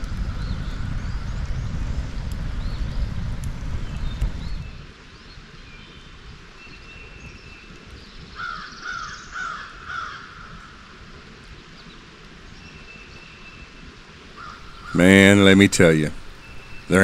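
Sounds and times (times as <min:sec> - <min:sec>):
steady background hiss: 0:03.5 - 0:17.0
crow cawing: 0:08.4 - 0:10.6, 0:14.4 - 0:15.2
thin high bird whistles: 0:16.1 - 0:17.0.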